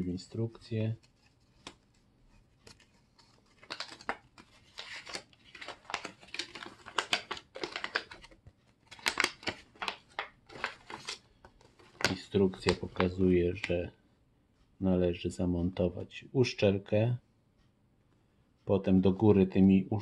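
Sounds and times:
paper leaflet rustling: 0:00.6 - 0:13.8
plastic bag crinkling: 0:02.6 - 0:13.2.

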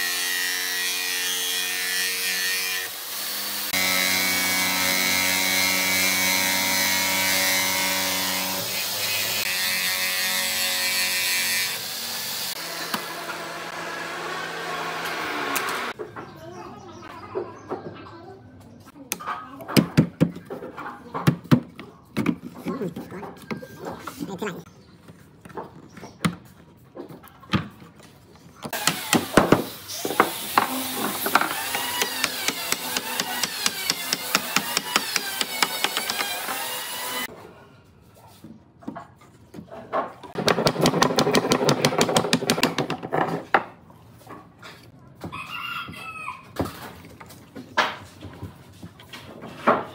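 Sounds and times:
jigsaw cutting wood: 0:00.0 - 0:16.0, 0:28.7 - 0:37.3.

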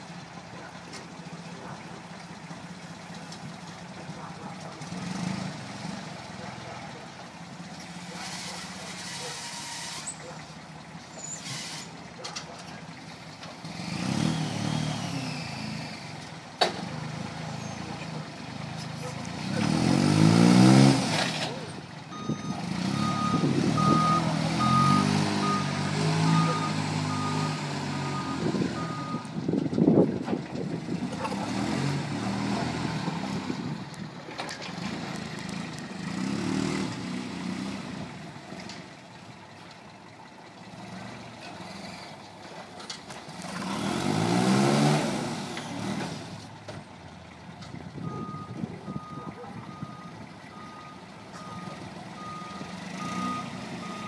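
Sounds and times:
forklift engine running: 0:00.0 - 0:54.0
reversing alarm beeping: 0:22.1 - 0:29.3, 0:48.1 - 0:54.0.

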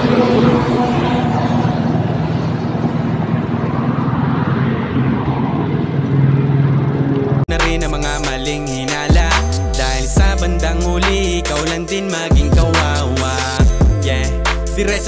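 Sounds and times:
wind and road noise: 0:00.0 - 0:12.0.

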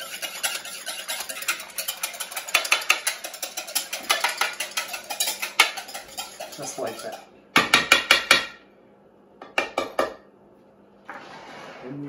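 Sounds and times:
whisk beating in a bowl: 0:00.0 - 0:08.4.

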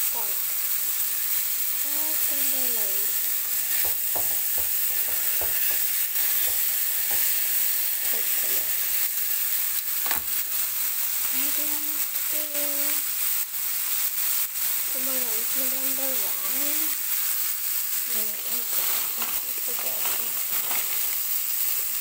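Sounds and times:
meat sizzling in oil: 0:00.0 - 0:22.0
tongs knocking and scraping pan: 0:03.4 - 0:08.6.

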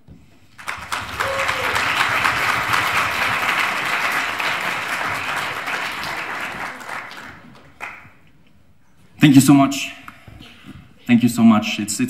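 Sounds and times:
audience applauding: 0:00.5 - 0:08.2.

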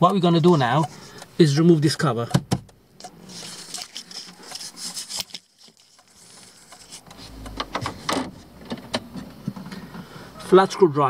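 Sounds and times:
camera handling clicks and rustling: 0:03.0 - 0:07.6.

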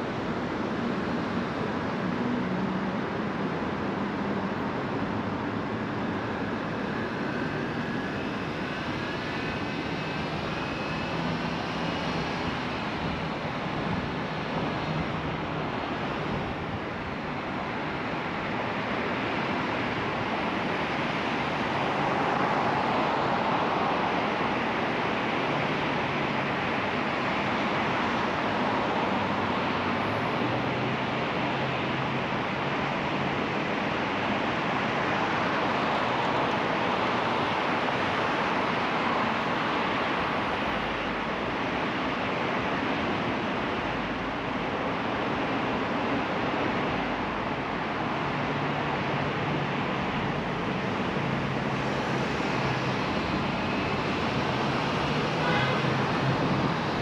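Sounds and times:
car road and engine noise: 0:00.0 - 0:57.0
faint gliding whine: 0:04.5 - 0:25.2, 0:34.5 - 0:57.0.

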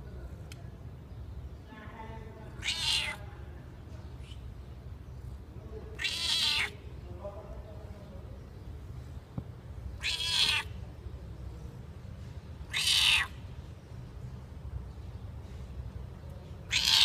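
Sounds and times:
cat meowing: 0:02.6 - 0:03.2, 0:05.9 - 0:06.8, 0:10.0 - 0:10.8, 0:12.7 - 0:13.4, 0:16.6 - 0:17.0.

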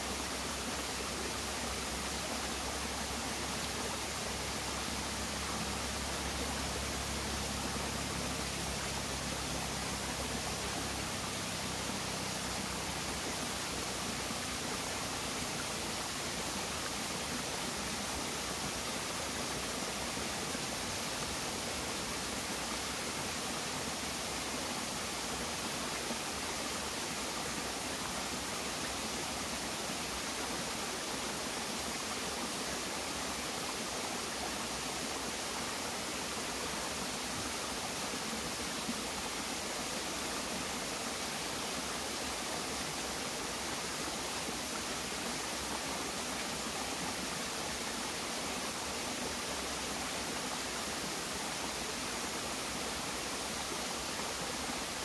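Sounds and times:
stream running over rocks: 0:00.0 - 0:55.0.

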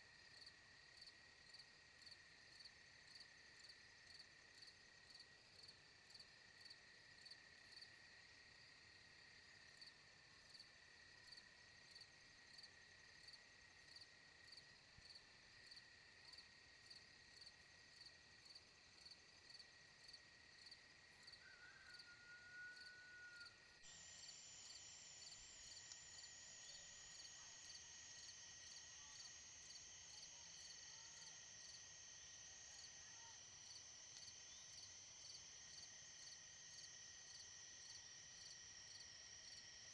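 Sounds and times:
insects trilling: 0:10.5 - 0:39.9.

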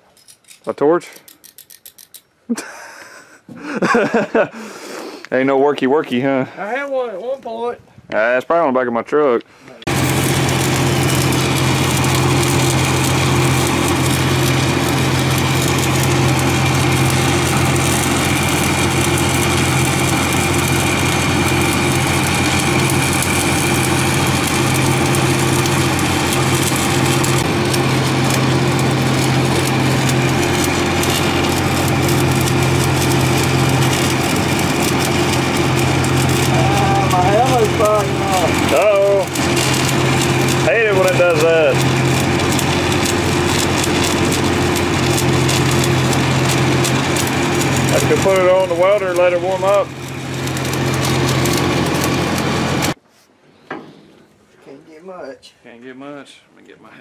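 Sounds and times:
welding arc crackling: 0:09.8 - 0:53.0
engine running hum: 0:09.9 - 0:53.0.

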